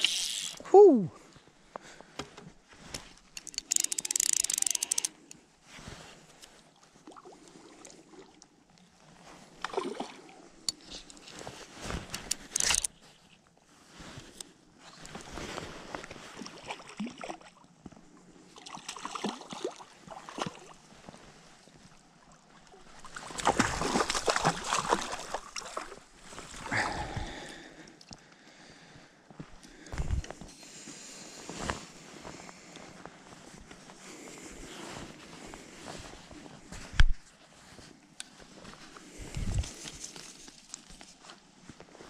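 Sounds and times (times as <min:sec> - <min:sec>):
fish thrashing and splashing: 0:23.2 - 0:26.0.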